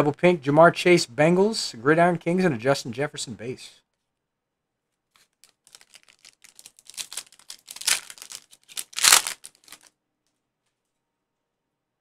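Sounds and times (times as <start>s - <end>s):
foil wrapper tearing and crinkling: 5.2s - 9.9s.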